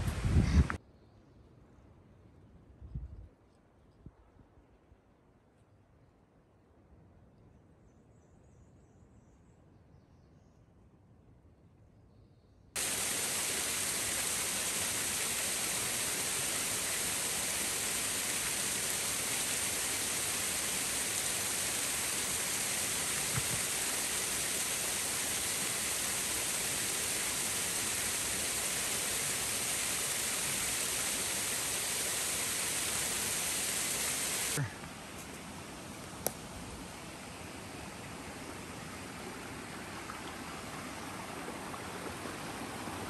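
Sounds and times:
running water: 12.8 - 43.0.

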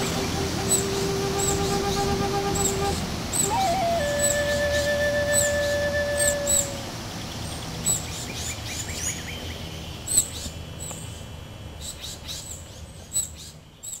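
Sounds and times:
songbirds chirping: 0.0 - 14.0.

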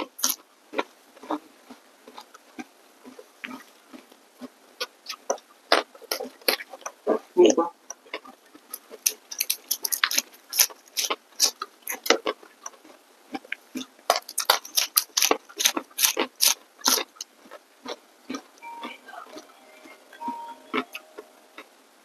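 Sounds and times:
crunching raw vegetables: 7.9 - 18.5.

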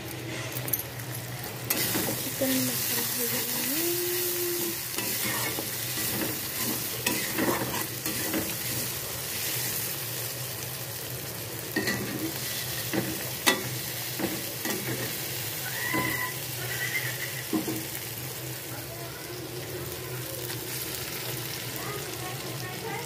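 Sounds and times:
gravy sizzling in a pan: 0.0 - 23.0.

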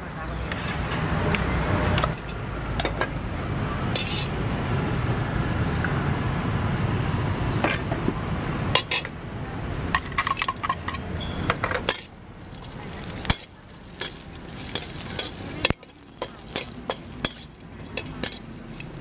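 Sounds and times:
ladle and bowl clinking on wok: 10.0 - 19.0.

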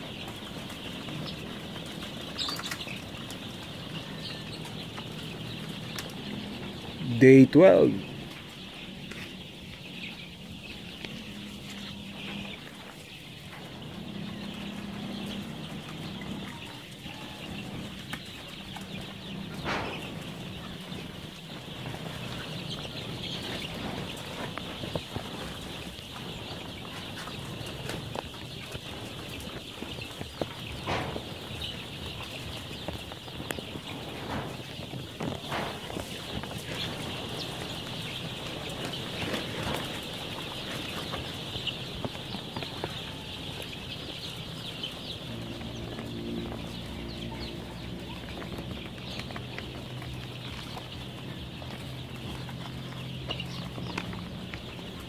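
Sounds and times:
chicks peeping: 0.0 - 55.0
scattered knocks: 17.5 - 23.0, 30.2 - 38.0.

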